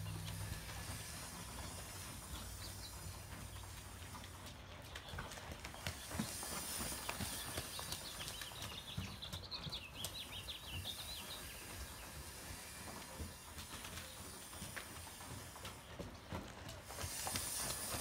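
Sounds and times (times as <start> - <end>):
hoofbeats on sand: 0.0 - 18.0.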